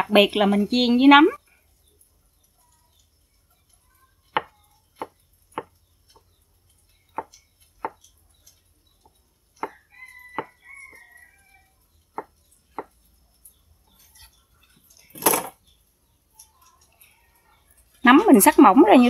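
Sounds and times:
knife chopping on wooden board: 0:04.4 - 0:05.7, 0:07.2 - 0:08.0.

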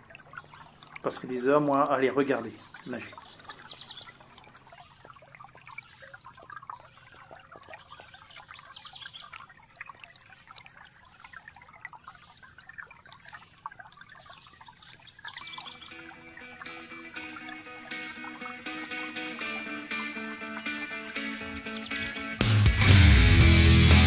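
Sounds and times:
faint trickling water: 0:00.0 - 0:22.4
short high bird chirps: 0:20.7 - 0:22.3.

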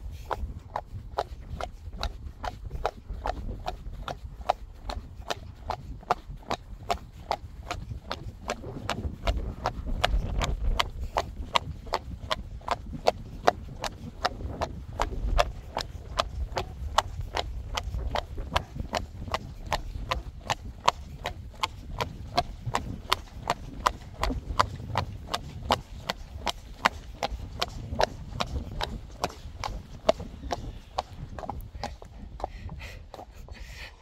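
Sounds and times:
horse hooves clip-clopping on pavement: 0:00.1 - 0:33.6.

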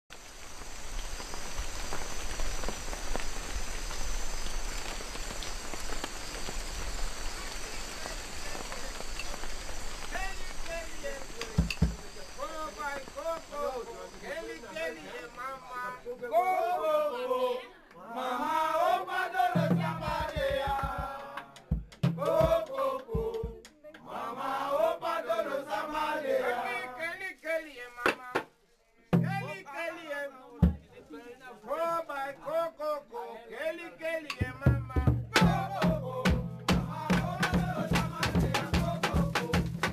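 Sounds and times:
rain hiss and patter: 0:00.1 - 0:16.2, 0:35.4 - 0:39.9
voices chanting: 0:10.1 - 0:28.0, 0:31.7 - 0:39.9
low drum beats: 0:11.6 - 0:12.1, 0:19.6 - 0:22.6, 0:23.2 - 0:23.6, 0:34.4 - 0:39.9.

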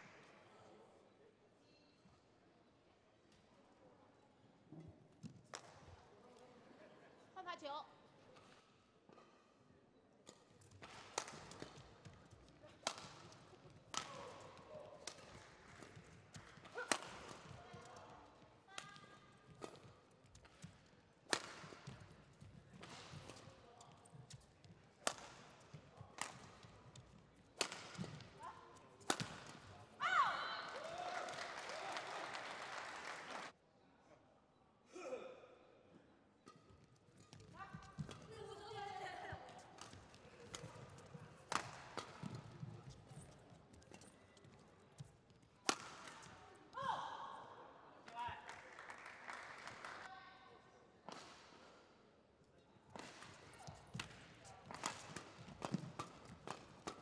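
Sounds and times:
rackets striking shuttlecock: 0:10.2 - 0:17.8, 0:19.5 - 0:24.4, 0:25.0 - 0:28.3, 0:29.0 - 0:29.8, 0:36.4 - 0:38.4, 0:39.5 - 0:43.2, 0:45.6 - 0:46.4, 0:52.9 - 0:57.0
badminton racket hitting shuttlecock: 0:10.8 - 0:11.8, 0:12.8 - 0:13.3, 0:15.0 - 0:17.6, 0:21.3 - 0:22.0, 0:25.0 - 0:25.6, 0:26.2 - 0:28.3, 0:29.0 - 0:29.8, 0:45.7 - 0:46.2, 0:52.9 - 0:57.0.

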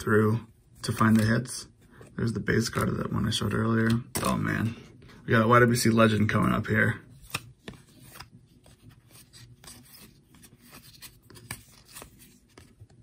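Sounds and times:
trading cards sliding: 0:07.2 - 0:12.9.

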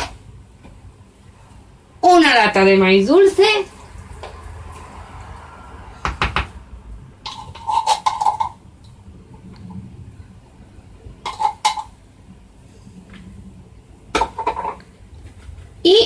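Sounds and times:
metal utensil scraping tin can: 0:07.2 - 0:08.6, 0:11.2 - 0:12.0.

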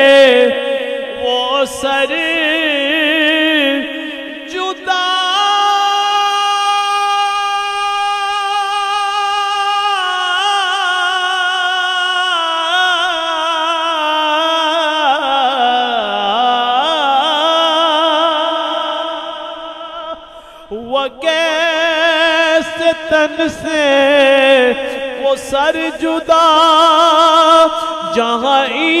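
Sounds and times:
man singing long held note: 0:00.0 - 0:29.0
breath: 0:20.2 - 0:20.7.

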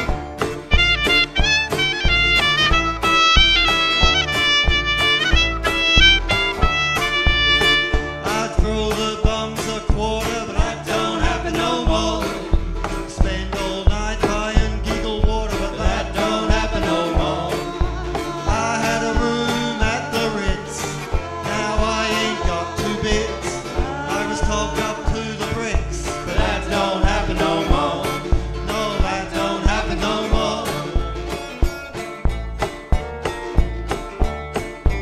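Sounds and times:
strummed acoustic guitar: 0:00.0 - 0:35.0
upright bass plucking: 0:00.0 - 0:35.0
people singing: 0:08.2 - 0:31.6.

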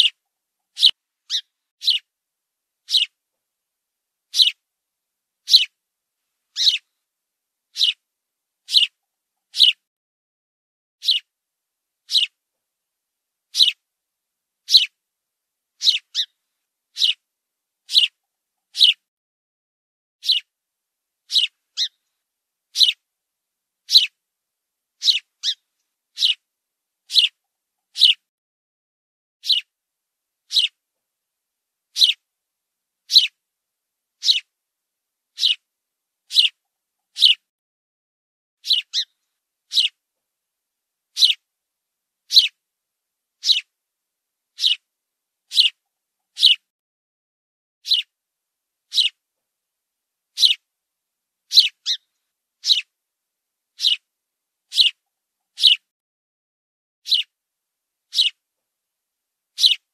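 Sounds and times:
sparrow chirping: 0:00.0 - 0:02.1, 0:02.8 - 0:03.2, 0:04.3 - 0:04.6, 0:05.4 - 0:05.8, 0:06.5 - 0:06.9, 0:07.7 - 0:08.0, 0:08.6 - 0:09.8, 0:11.0 - 0:11.3, 0:12.0 - 0:12.4, 0:13.5 - 0:13.8, 0:14.6 - 0:15.0, 0:15.8 - 0:17.2, 0:17.9 - 0:19.0, 0:20.2 - 0:20.5, 0:21.3 - 0:22.0, 0:22.7 - 0:23.0, 0:23.8 - 0:24.2, 0:25.0 - 0:26.5, 0:27.1 - 0:28.2, 0:29.4 - 0:29.7, 0:30.5 - 0:30.8, 0:31.9 - 0:32.2, 0:33.0 - 0:33.4, 0:34.2 - 0:34.5, 0:35.3 - 0:35.7, 0:36.3 - 0:37.4, 0:38.6 - 0:40.0, 0:41.1 - 0:41.4, 0:42.3 - 0:42.6, 0:43.4 - 0:43.7, 0:44.5 - 0:44.9, 0:45.5 - 0:46.6, 0:47.8 - 0:48.1, 0:48.9 - 0:49.2, 0:50.3 - 0:50.6, 0:51.5 - 0:52.9, 0:53.7 - 0:54.1, 0:54.7 - 0:55.9, 0:57.0 - 0:57.4, 0:58.1 - 0:58.4, 0:59.5 - 0:59.9.

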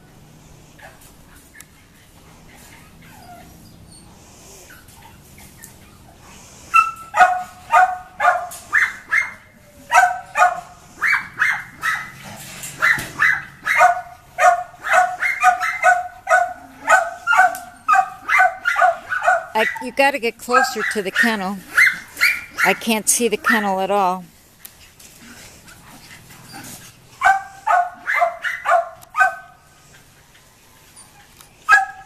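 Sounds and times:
dog barking: 0:06.8 - 0:12.2, 0:12.8 - 0:19.8, 0:20.6 - 0:22.8, 0:27.2 - 0:29.6, 0:31.7 - 0:32.0.

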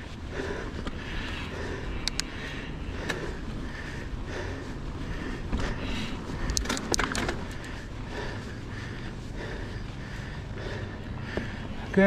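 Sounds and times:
sharp clicks and crackles: 0:02.0 - 0:02.4, 0:06.4 - 0:07.8.

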